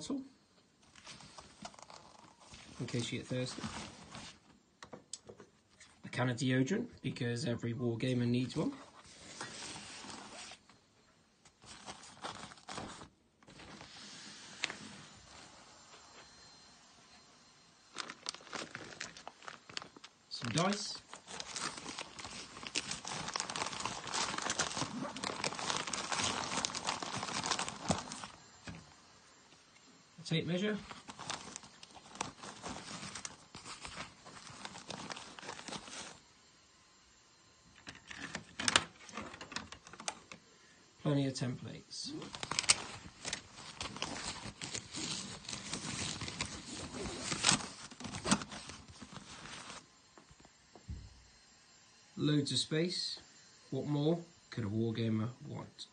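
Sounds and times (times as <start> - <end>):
nylon case fabric rustling: 0.9 - 2.9, 8.8 - 10.6, 30.8 - 36.2
rustling and soft clicks of items: 8.3 - 29.9, 30.6 - 36.3.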